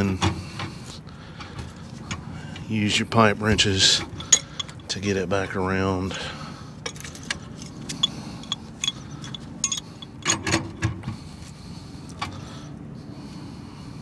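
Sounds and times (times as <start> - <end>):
pipe wrench clicking on metal: 4.2 - 4.9, 6.9 - 10.6.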